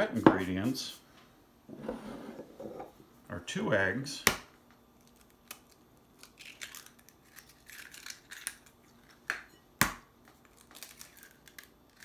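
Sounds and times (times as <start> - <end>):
eggshells crackling: 5.0 - 9.3.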